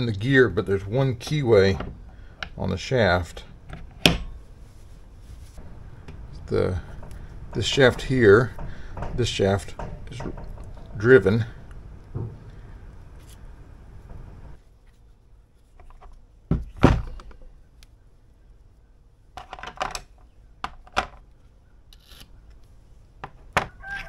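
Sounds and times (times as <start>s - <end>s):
heavy metal knocks: 5.6s - 14.6s.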